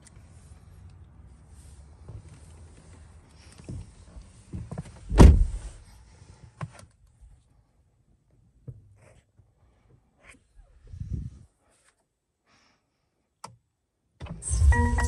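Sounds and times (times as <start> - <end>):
car door shutting thump: 5.1 - 5.7.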